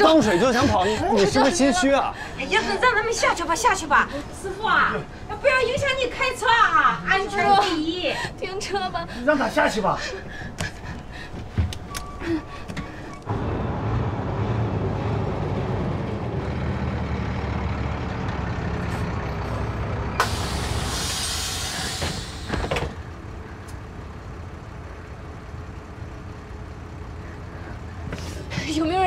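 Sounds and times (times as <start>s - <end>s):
bus engine running: 0.0s - 29.0s
air brake hiss: 20.2s - 22.7s.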